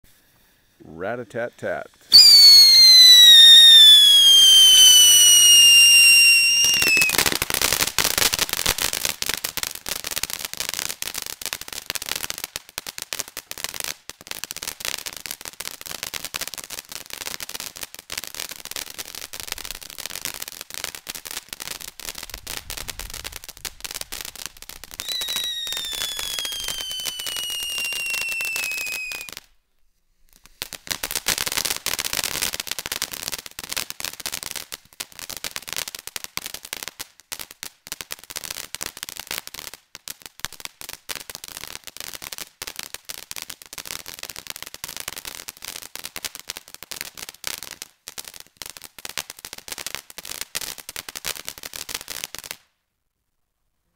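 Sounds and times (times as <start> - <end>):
firework crackling pops: 1.6 - 29.6, 30.3 - 52.8
firework whistle falling in pitch: 2.1 - 7.4, 25.0 - 29.4.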